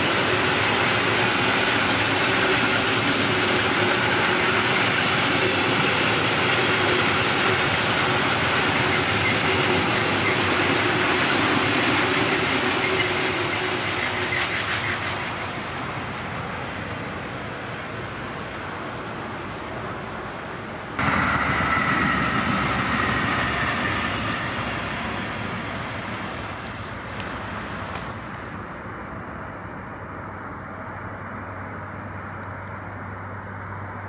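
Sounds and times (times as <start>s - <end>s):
freight train wheels clickety-clack: 0.0s - 18.0s, 21.0s - 28.7s.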